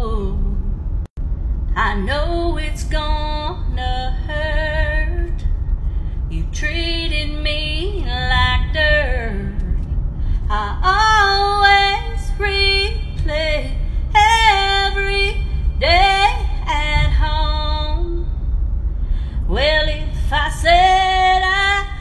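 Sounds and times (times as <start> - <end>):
low rumble: 0.0 - 22.0
woman singing country song: 1.8 - 5.4, 6.4 - 9.8, 10.5 - 18.2, 19.5 - 22.0.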